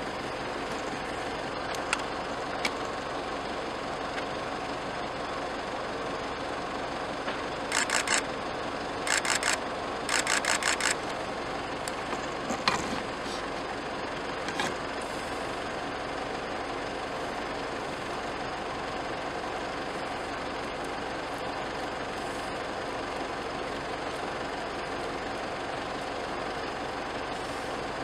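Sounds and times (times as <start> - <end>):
vehicle engines idling: 0.0 - 28.0
rapid clicking pulses: 7.7 - 8.3, 9.0 - 11.2.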